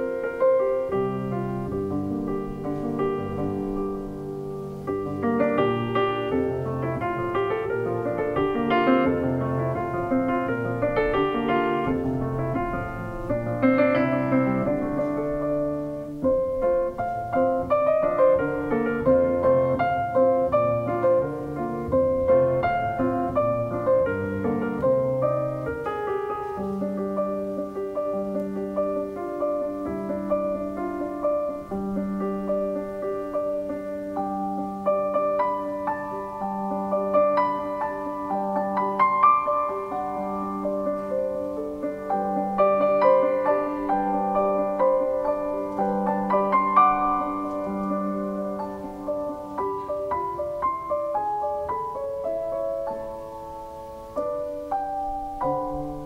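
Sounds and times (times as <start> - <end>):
grand piano playing: 0.0 - 56.0.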